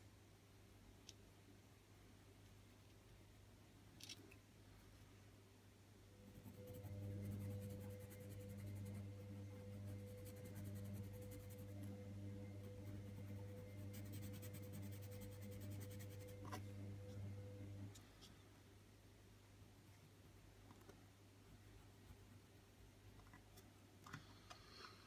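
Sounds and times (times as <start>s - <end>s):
steady low hum: 4.6s - 25.0s
pencil scratching on paper: 6.3s - 16.6s.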